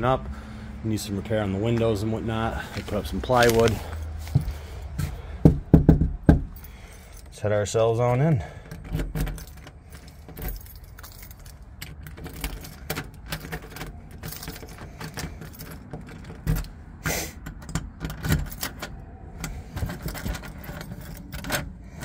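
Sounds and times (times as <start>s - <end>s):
keys jangling on a ring: 9.1s - 16.7s, 17.5s - 21.8s.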